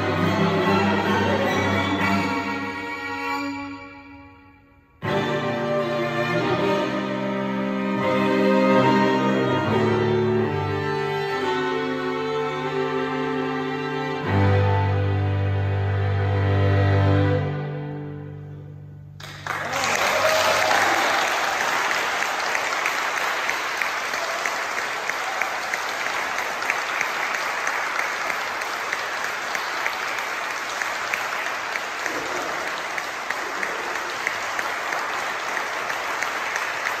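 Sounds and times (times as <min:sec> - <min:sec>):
audience applauding: 0:19.2 - 0:37.0.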